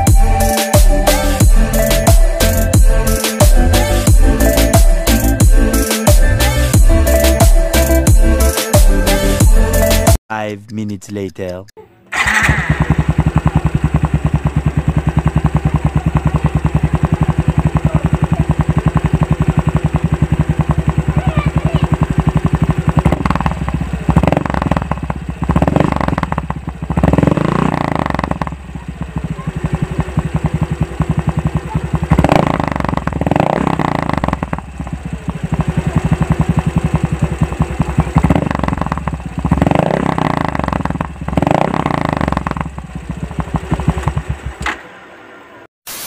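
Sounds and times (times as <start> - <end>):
scooter engine idling: 0.0 - 10.1, 12.1 - 44.9
scooter engine throttle blips: 12.0 - 44.8.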